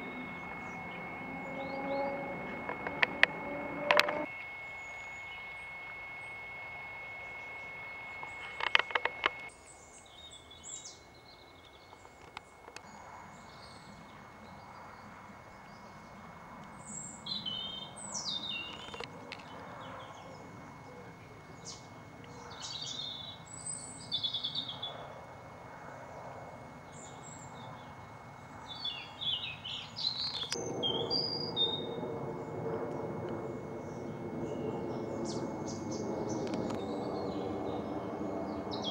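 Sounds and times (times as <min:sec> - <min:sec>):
small birds chirping: 0:00.0 - 0:03.4, 0:16.7 - 0:25.1, 0:26.8 - 0:32.0
clicks: 0:00.0 - 0:04.6, 0:07.6 - 0:09.5
steady high tone: 0:00.0 - 0:09.5, 0:19.8 - 0:38.9
low droning hum: 0:00.0 - 0:38.9.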